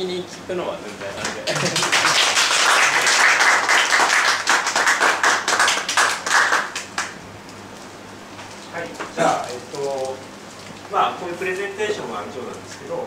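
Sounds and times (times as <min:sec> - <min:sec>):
audience applauding: 0:01.2 - 0:07.2.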